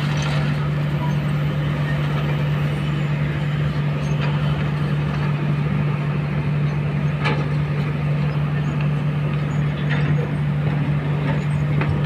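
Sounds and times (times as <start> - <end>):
excavator diesel engines humming: 0.0 - 12.0.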